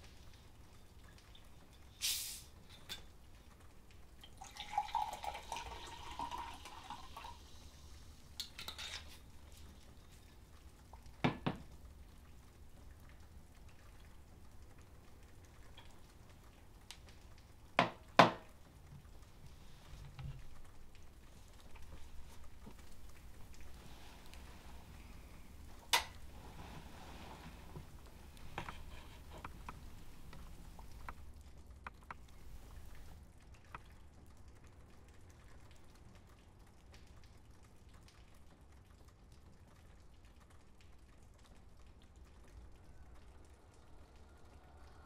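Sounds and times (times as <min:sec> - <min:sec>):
liquid pouring into glass: 0:04.2 - 0:07.7.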